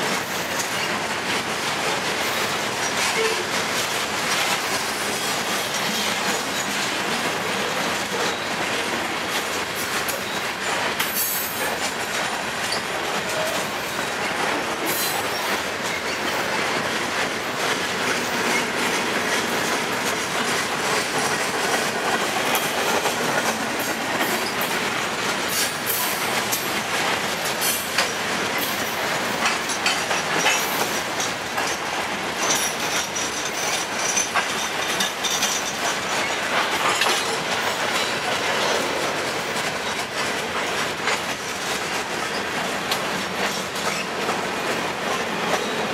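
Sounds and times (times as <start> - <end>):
train wheels rumbling on rail: 0.0 - 45.9
wheels clicking over rail joints: 0.1 - 45.9.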